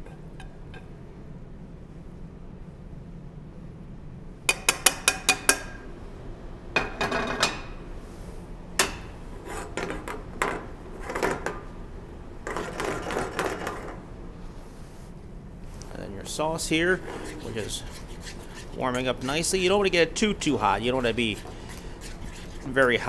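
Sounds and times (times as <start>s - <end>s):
utensil scraping cookware: 8.8s - 11.6s, 12.4s - 14.0s, 16.8s - 23.0s.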